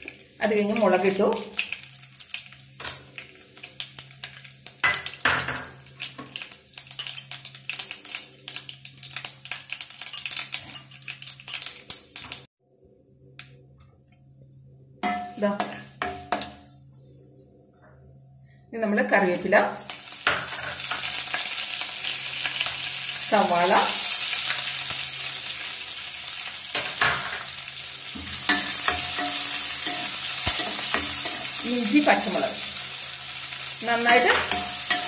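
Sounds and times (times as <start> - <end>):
mustard seeds crackling in hot oil: 0.0 - 12.5, 19.5 - 35.0.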